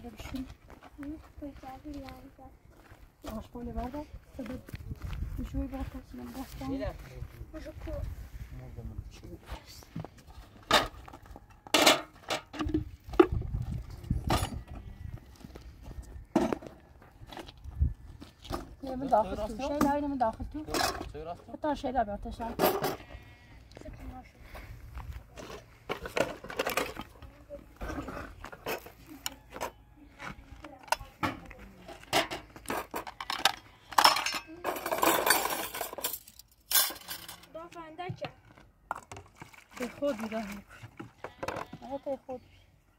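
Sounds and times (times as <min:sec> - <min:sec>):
dishes and pots clattering: 0:32.1 - 0:37.3.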